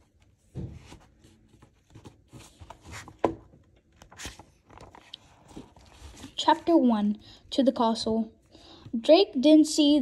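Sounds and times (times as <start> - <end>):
book pages rustling: 0.0 - 6.8.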